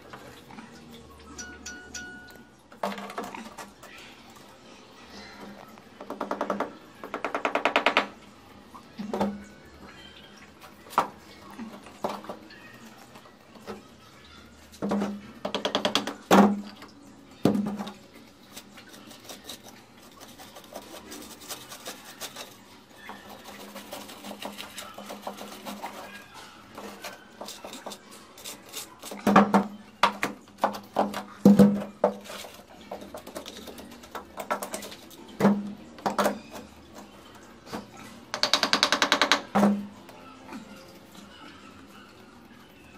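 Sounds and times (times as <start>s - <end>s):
hands smoothing mortar: 18.6s - 29.2s.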